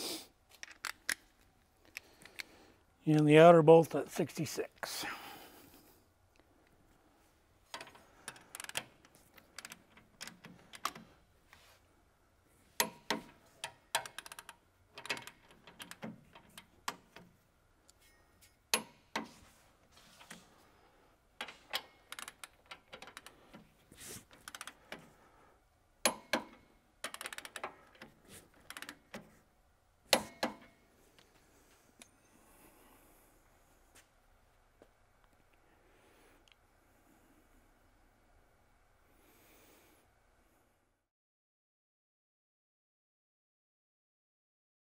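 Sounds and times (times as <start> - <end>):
ratchet wrench clicking: 24.4 - 24.7, 26.1 - 27.7.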